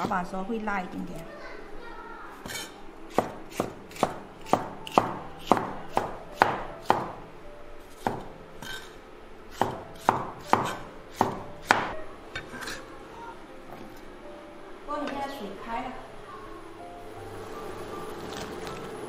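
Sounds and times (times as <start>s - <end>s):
cleaver chopping on wooden board: 2.4s - 7.2s, 8.0s - 8.8s, 9.5s - 11.9s.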